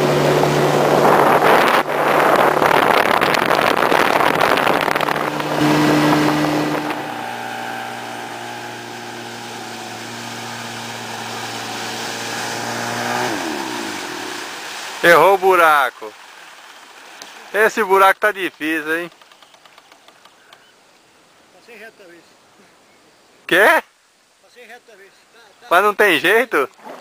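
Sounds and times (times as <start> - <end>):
outboard motor running: 0.0 - 14.9
rushing wind and water: 0.0 - 19.0.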